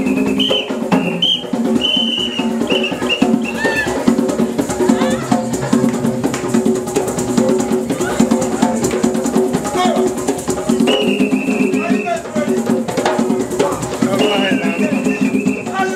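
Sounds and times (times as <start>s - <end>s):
high held notes: 2.2s - 9.0s
drum-led dance music: 11.6s - 15.9s.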